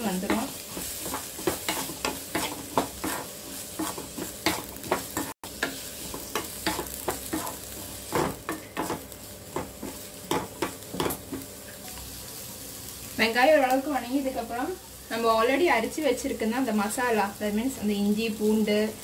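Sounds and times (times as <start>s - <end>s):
onions sizzling in hot oil: 0.0s - 19.0s
spatula scraping metal pan: 0.2s - 9.0s.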